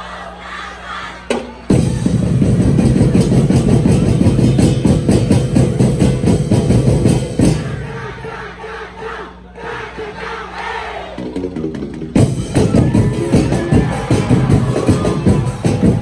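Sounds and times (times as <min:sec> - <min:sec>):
crowd noise: 0:00.0 - 0:16.0
loud dance music with heavy drumming: 0:01.7 - 0:07.9, 0:12.2 - 0:16.0.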